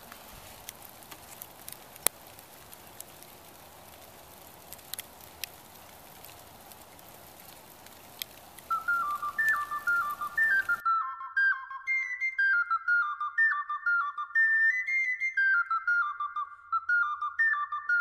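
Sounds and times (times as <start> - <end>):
clicks and pops: 0.0 - 10.8
steady soft hiss: 0.0 - 10.8
flute-like melody: 8.6 - 18.0.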